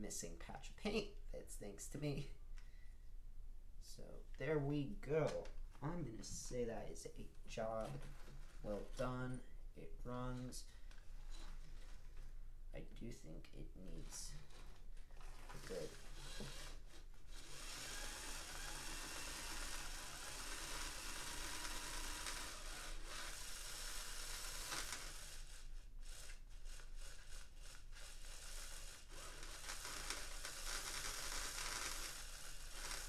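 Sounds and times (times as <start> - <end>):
model locomotive motor whirring: 16.1 - 33.0.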